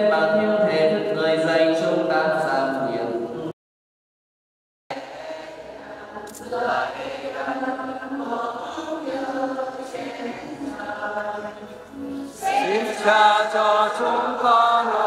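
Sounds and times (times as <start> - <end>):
choir singing a hymn: 4.9 - 15.0.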